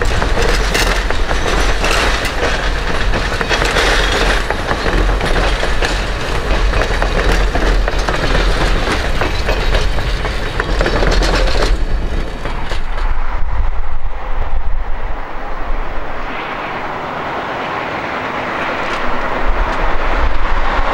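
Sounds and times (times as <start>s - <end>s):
train wheels clattering over rail joints: 0.0s - 13.2s, 18.3s - 20.9s
low train rumble: 0.0s - 20.9s.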